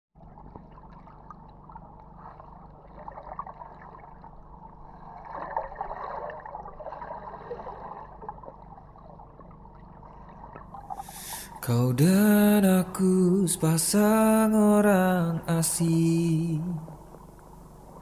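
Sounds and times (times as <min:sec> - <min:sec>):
muffled underwater gurgle: 0:00.2 - 0:18.0.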